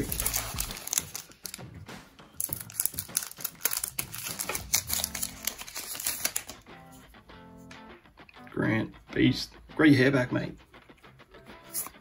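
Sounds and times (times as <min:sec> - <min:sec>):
foil wrapper crinkling: 0:00.0 - 0:01.6, 0:02.4 - 0:06.6.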